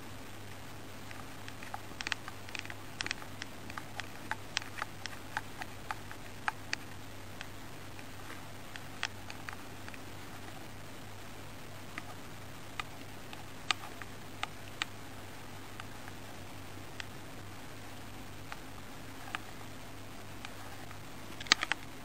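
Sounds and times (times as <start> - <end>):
steady low hum: 0.0 - 22.0
light irregular clicks: 1.0 - 10.6, 11.9 - 15.0, 16.9 - 17.5, 20.4 - 22.0.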